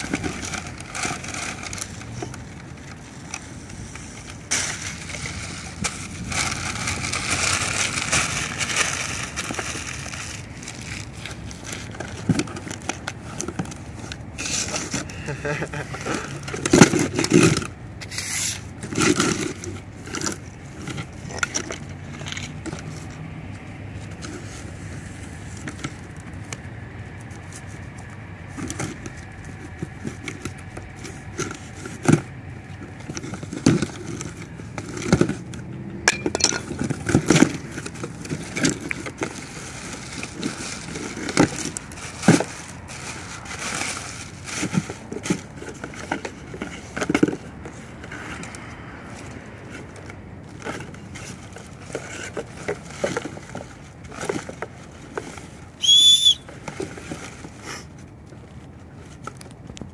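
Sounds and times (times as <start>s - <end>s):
plastic packing crackling: 0.0s - 17.5s, 36.4s - 48.2s
low background noise: 0.0s - 59.9s
knife slitting packing tape: 17.3s - 19.5s.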